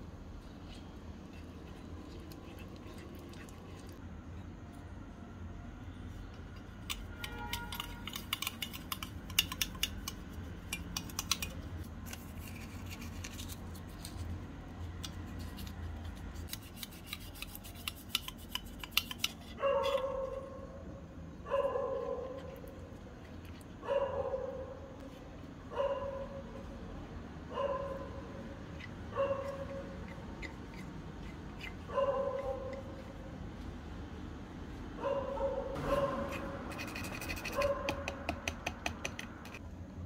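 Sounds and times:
dog barking: 0:19.6 - 0:20.6, 0:21.5 - 0:22.6, 0:23.8 - 0:24.9, 0:25.7 - 0:26.4, 0:27.5 - 0:28.2, 0:29.1 - 0:29.8, 0:31.9 - 0:32.9, 0:35.0 - 0:36.3, 0:37.5 - 0:38.1.

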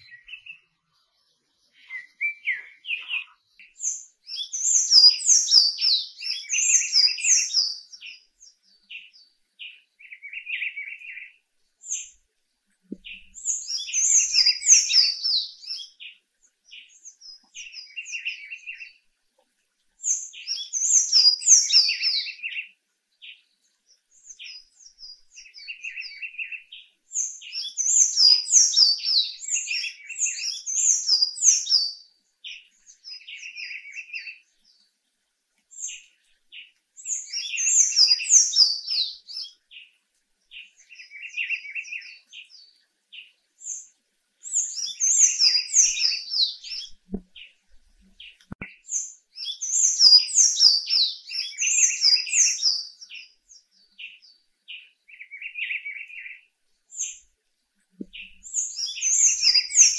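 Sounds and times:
bird twittering: 0:44.5 - 0:47.5, 0:58.1 - 0:59.9.

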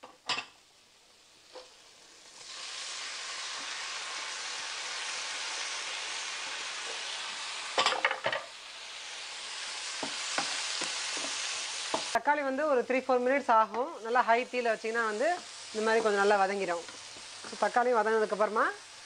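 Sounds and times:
tomatoes sizzling in oil: 0:00.0 - 0:19.0
stirring in pan: 0:09.8 - 0:12.2.

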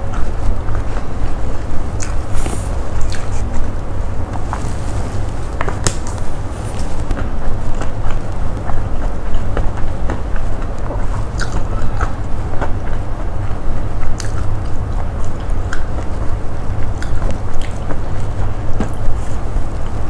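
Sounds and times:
close chewing and biting: 0:00.0 - 0:20.0
steady low hum: 0:00.0 - 0:20.0.

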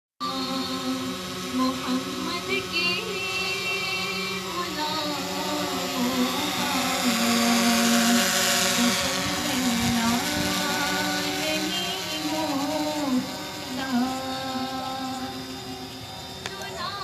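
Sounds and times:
drone motors whining: 0:00.2 - 0:17.0.

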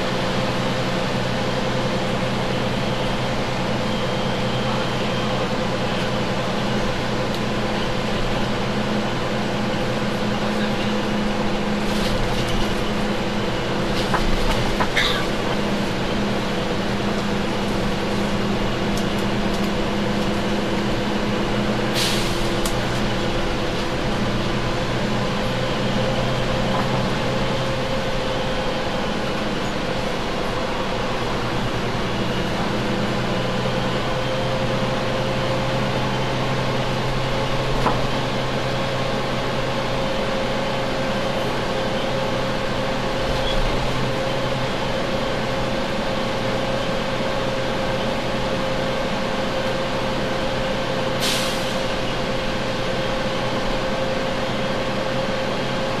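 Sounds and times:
bus diesel engine idling: 0:00.0 - 0:56.0.

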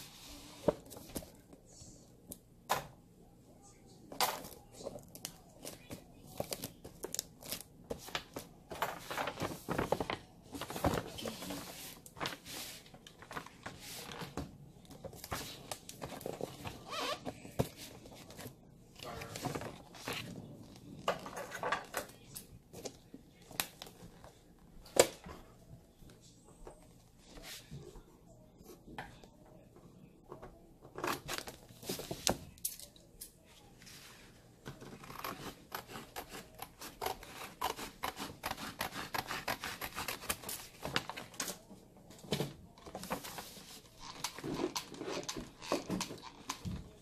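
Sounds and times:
paper rustling and crinkling: 0:04.7 - 0:22.2.

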